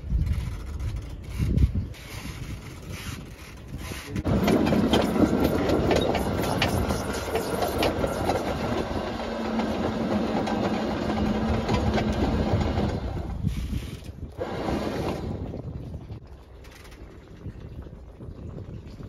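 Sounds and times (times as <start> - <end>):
anchor chain rattling: 0.0 - 8.9.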